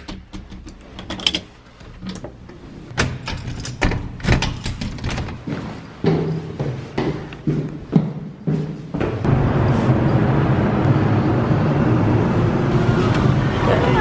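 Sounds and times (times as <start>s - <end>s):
keys and lock clicking: 2.9s - 5.4s.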